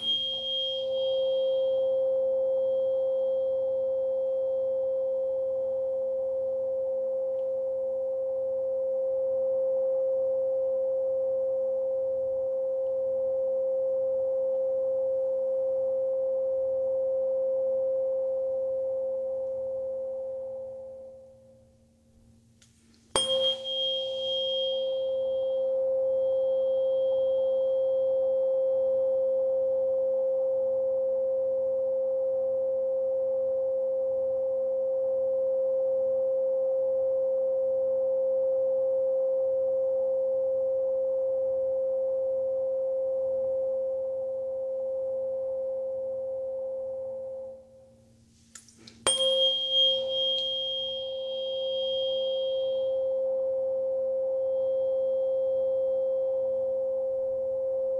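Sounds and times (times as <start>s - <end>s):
tuning fork struck knock: 0.0s - 4.4s, 23.1s - 28.6s, 48.8s - 53.5s
tuning fork ringing: 0.0s - 21.8s, 22.9s - 48.2s, 48.9s - 57.9s.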